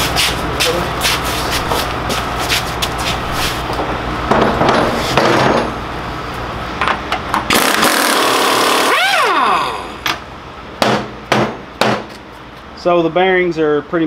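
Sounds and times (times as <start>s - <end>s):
pneumatic impact wrench hammering: 7.3s - 10.2s, 10.8s - 12.2s.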